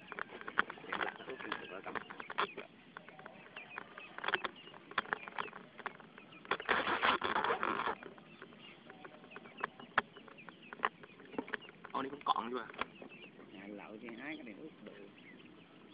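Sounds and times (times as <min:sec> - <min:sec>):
rubbing on phone microphone: 0:03.2 - 0:10.0.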